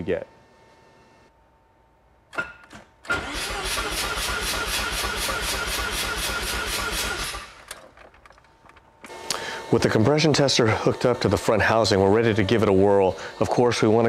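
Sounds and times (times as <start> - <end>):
engine cranking on starter: 3.1 - 8.4.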